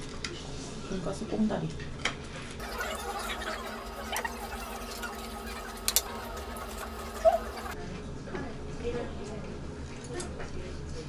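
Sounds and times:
chopsticks and plates clicking: 0:05.2 - 0:07.7.

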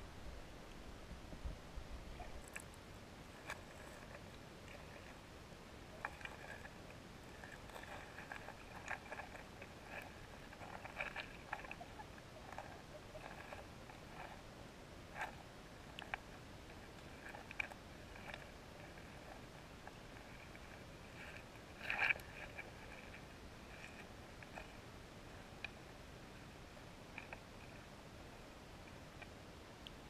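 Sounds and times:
low hiss: 0:00.0 - 0:30.0
underwater clicks and crackles: 0:02.1 - 0:25.9, 0:26.5 - 0:28.0, 0:28.8 - 0:30.0.

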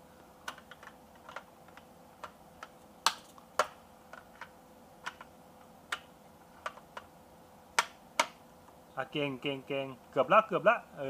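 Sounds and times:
plastic blocks clicking and knocking: 0:00.4 - 0:05.3.

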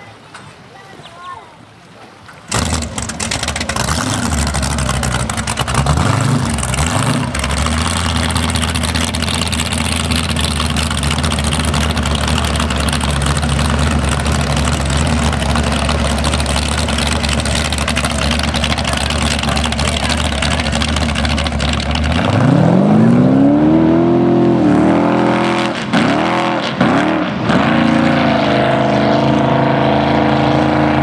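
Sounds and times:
boat engine running: 0:02.5 - 0:31.0.

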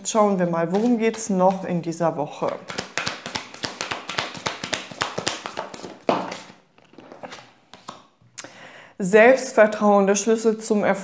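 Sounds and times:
cards being shuffled: 0:00.7 - 0:01.7, 0:02.4 - 0:08.1.

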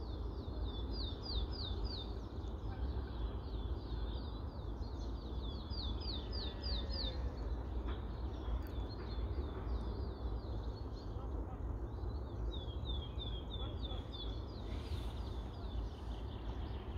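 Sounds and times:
small songbird singing: 0:00.0 - 0:16.9.

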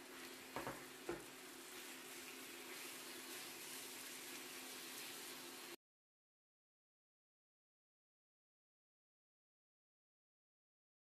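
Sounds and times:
meat sizzling in a frying pan: 0:00.0 - 0:05.8
wooden spatula knocking on pan: 0:00.6 - 0:01.3.

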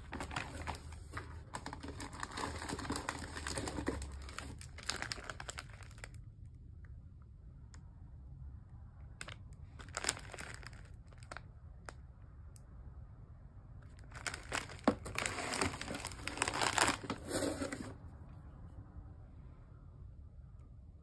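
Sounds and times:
plastic packaging crinkling: 0:00.0 - 0:06.2, 0:09.2 - 0:11.4, 0:14.0 - 0:18.0.

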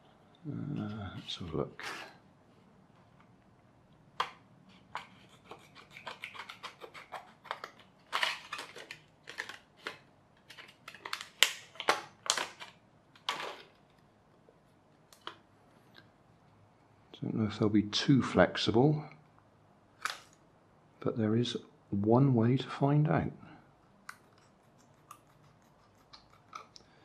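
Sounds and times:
plastic crinkling: 0:05.1 - 0:14.0.

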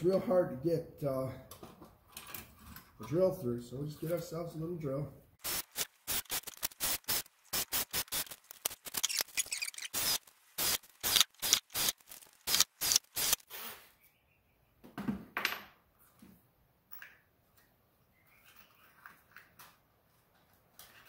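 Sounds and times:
cordless drill boring into masonry: 0:09.0 - 0:13.9.

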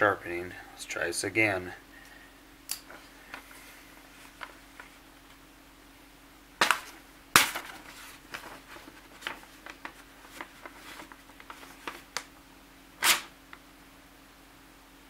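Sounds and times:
knife blade cracking through paper: 0:13.0 - 0:13.3
paper crackling as blade cuts: 0:13.0 - 0:13.3.

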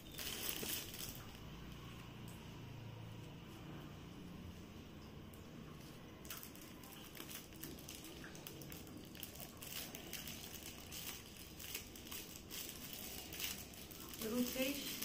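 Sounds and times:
gift-wrapping paper crinkling: 0:00.0 - 0:01.6, 0:06.2 - 0:15.0.

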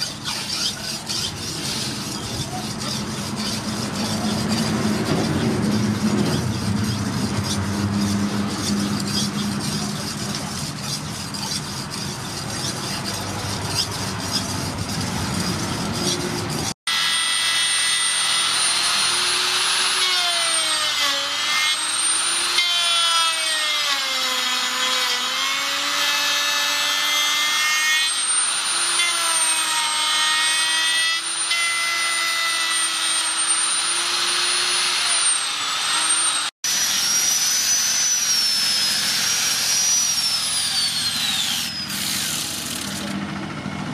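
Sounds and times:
blade scraping on sharpening stone: 0:00.0 - 0:16.7
angle grinder sanding whine: 0:00.0 - 0:23.0, 0:27.4 - 0:43.2
router cutting wood: 0:00.0 - 0:43.2.

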